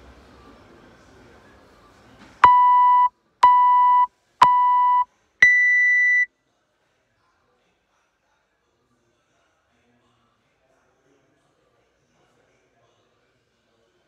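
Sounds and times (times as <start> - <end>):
longer higher beep: 2.4 - 6.3
short timer beeps: 2.4 - 6.3.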